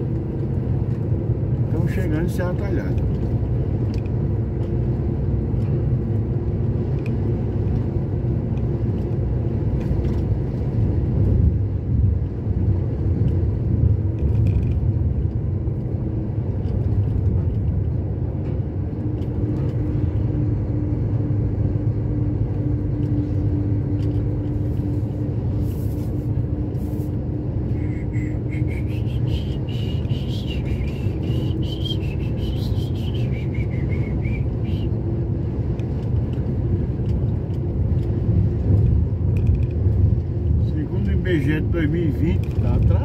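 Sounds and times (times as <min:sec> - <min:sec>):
engine and road rumble in cab: 0:00.0 - 0:43.0.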